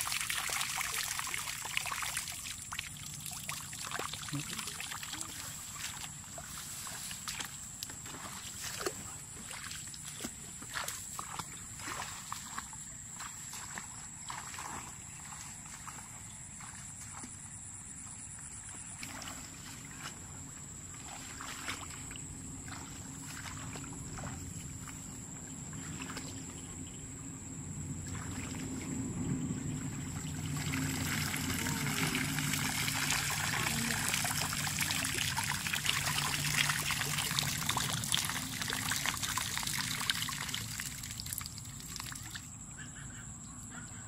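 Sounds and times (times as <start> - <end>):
rustling through tall grass: 5.2 - 12.6
water pouring from plastic bottle: 30.3 - 42.4.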